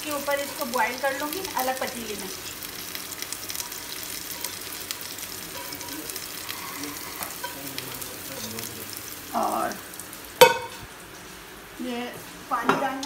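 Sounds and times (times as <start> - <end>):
onion sizzling in oil: 0.0 - 13.0.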